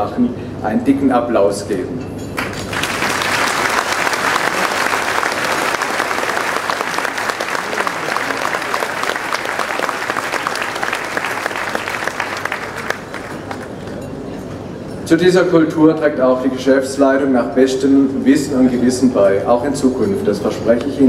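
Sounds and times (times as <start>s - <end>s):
audience applauding: 2.4s - 14.0s.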